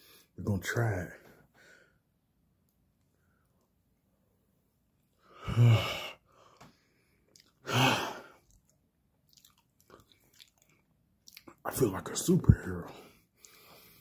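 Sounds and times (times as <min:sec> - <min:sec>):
man sighing loudly: 0:05.3 - 0:06.2, 0:07.6 - 0:08.4.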